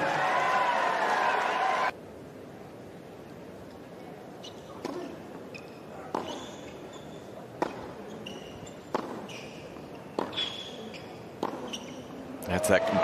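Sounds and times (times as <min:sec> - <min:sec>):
tennis ball bouncing on court: 0:04.8 - 0:06.6, 0:07.5 - 0:12.0
short high squeaks: 0:08.1 - 0:09.7, 0:10.3 - 0:12.2
racket striking ball: 0:08.9 - 0:09.3, 0:10.2 - 0:10.4, 0:11.4 - 0:11.7.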